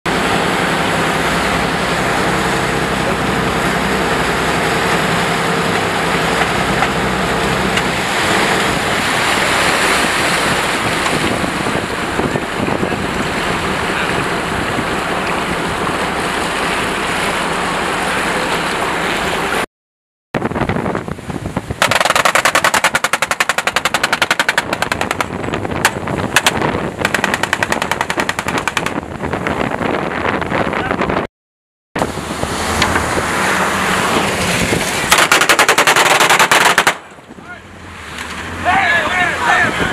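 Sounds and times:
wind buffeting microphone: 0:00.1 - 0:16.4, 0:20.4 - 0:31.3, 0:32.0 - 0:35.9, 0:39.5 - 0:39.9
boat engine drone: 0:00.1 - 0:19.7, 0:20.4 - 0:31.2, 0:32.0 - 0:39.9
rushing water: 0:00.1 - 0:19.7, 0:32.0 - 0:39.9
fast even rattle: 0:21.8 - 0:29.0.

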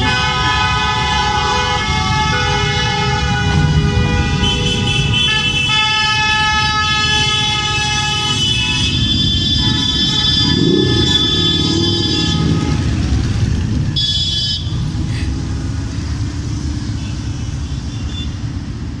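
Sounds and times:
horn sounding: 0:00.0 - 0:15.0
motorcycle engines passing: 0:00.0 - 0:19.0.

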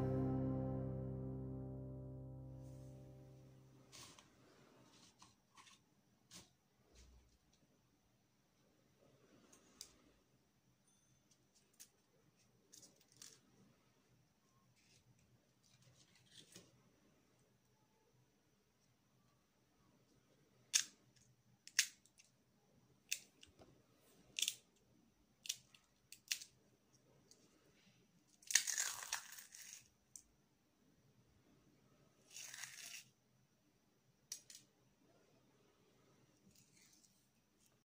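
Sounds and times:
crisp shells cracking and crunching: 0:28.3 - 0:29.9.

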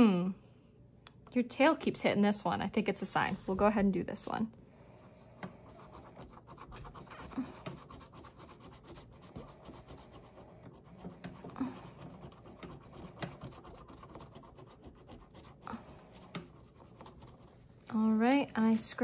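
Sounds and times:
rapid scratching of scratch-off panel: 0:05.5 - 0:17.7.

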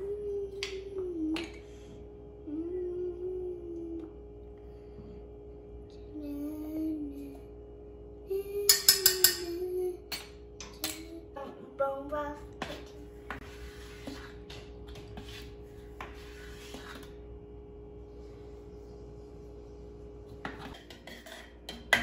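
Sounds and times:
person humming a slow tune: 0:00.0 - 0:04.5, 0:05.9 - 0:07.6, 0:08.2 - 0:10.1.

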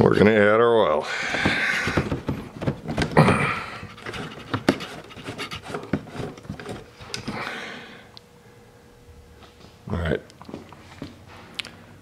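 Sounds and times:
breathy rasp: 0:01.0 - 0:02.1, 0:03.2 - 0:08.1
clicks and knocks on plastic: 0:01.3 - 0:07.4.

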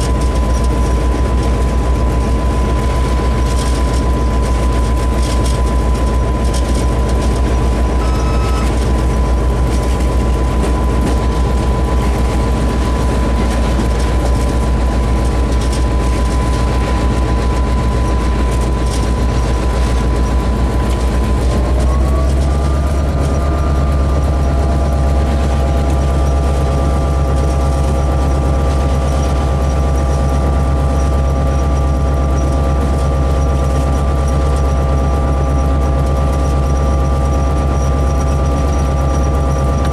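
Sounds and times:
locomotive engine drone: 0:00.0 - 0:39.9
thin whine: 0:00.0 - 0:39.9.

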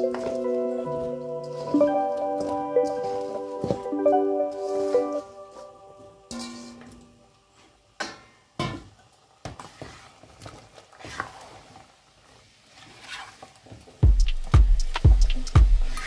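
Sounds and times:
music with heavy beat: 0:14.0 - 0:16.0.

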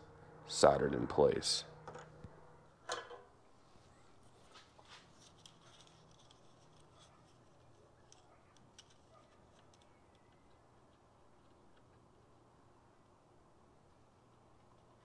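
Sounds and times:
faint clicks and handling noises: 0:04.4 - 0:12.1, 0:14.2 - 0:15.0.

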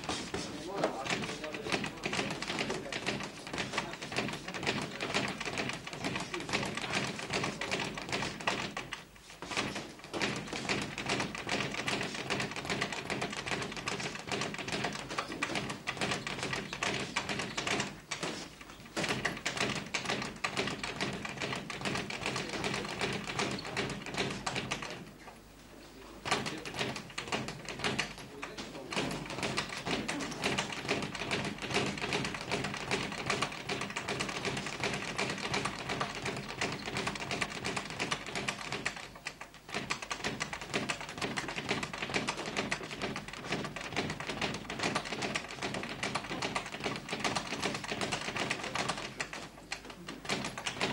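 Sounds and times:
feet shuffling on canvas: 0:00.0 - 0:01.5.

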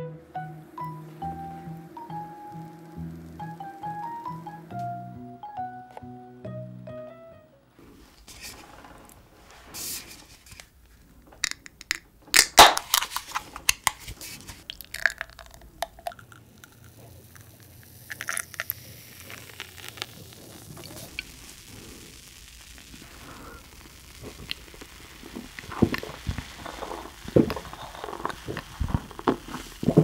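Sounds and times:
beer can handled: 0:07.8 - 0:21.3
rubber gloves crinkling and snapping: 0:10.3 - 0:30.0
beer pouring into a glass: 0:14.6 - 0:30.0.

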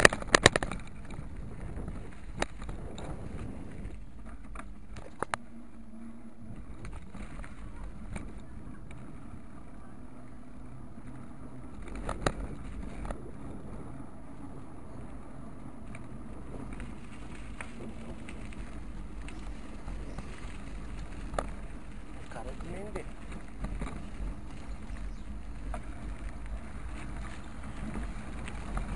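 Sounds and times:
sharp clicks and knocks: 0:00.0 - 0:01.2
wind and road rumble: 0:00.0 - 0:28.9.

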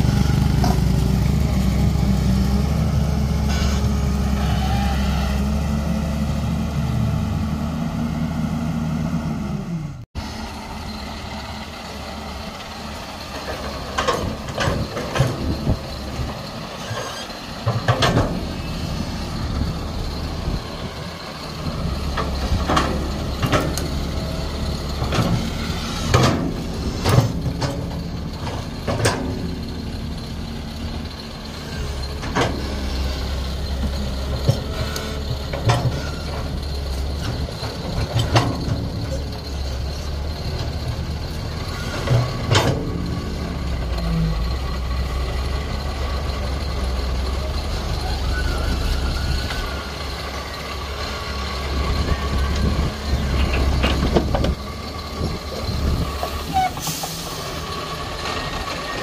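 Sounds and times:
excavator diesel engine running: 0:00.0 - 0:59.0
excavator bucket clanking and scraping: 0:13.2 - 0:50.0, 0:51.0 - 0:59.0.

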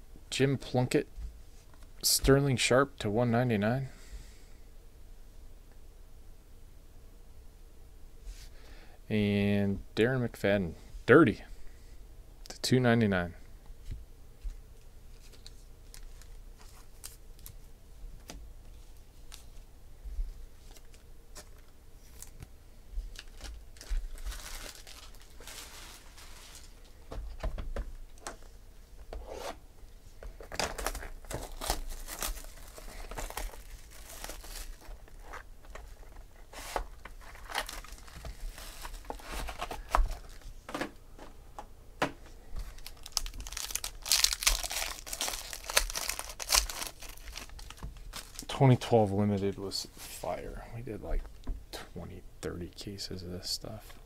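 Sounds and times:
plastic wrapping tearing and crinkling: 0:23.1 - 0:26.9, 0:30.4 - 0:40.4, 0:42.6 - 0:48.6.

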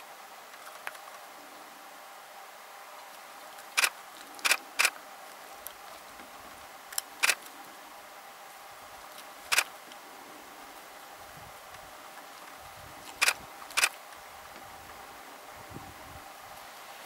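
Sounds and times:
faint steady hum: 0:00.0 - 0:17.0
camera shutter clicks: 0:03.8 - 0:05.0, 0:09.5 - 0:09.7, 0:13.2 - 0:14.0.

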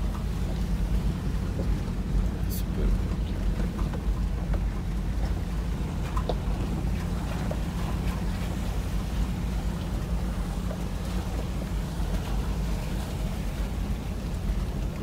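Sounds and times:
car engine low rumble: 0:00.0 - 0:15.0
tyres on rough dirt track: 0:00.0 - 0:15.0
small ticks and knocks: 0:03.3 - 0:08.5.

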